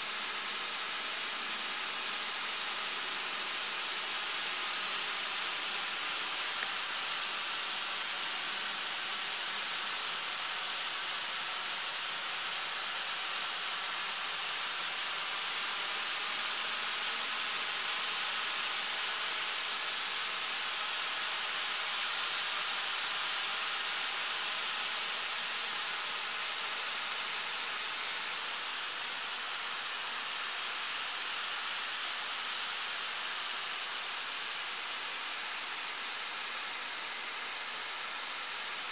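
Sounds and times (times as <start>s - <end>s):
snow guns hissing: 0.0s - 11.0s, 26.7s - 38.9s.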